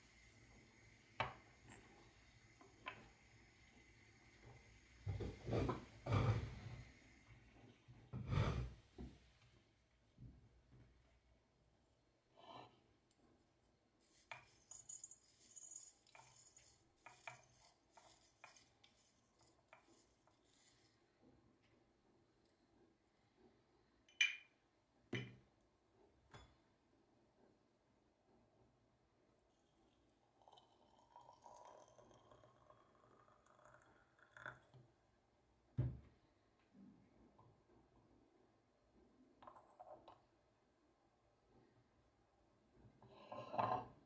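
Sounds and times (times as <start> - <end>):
tea leaves rustling into teapot: 14.0 - 21.2, 29.5 - 34.7
water trickling into clay teapot: 29.5 - 35.0.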